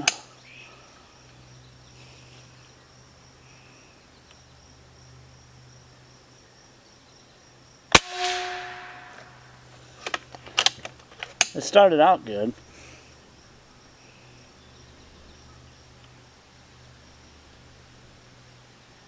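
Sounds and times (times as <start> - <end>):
high insect drone: 0.0 - 10.4, 11.5 - 19.0
air rifle shot crack: 7.9 - 9.6.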